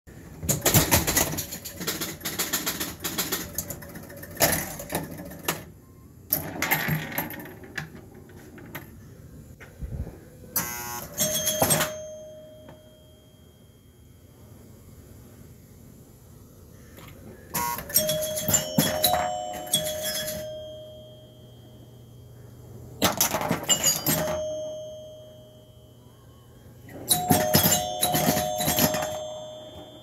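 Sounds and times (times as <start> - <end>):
pinball machine clicks and knocks: 0.4 - 9.0, 11.1 - 13.0, 17.5 - 21.3, 23.0 - 25.6, 26.9 - 30.0
ringing tone: 10.4 - 14.8, 17.5 - 30.0.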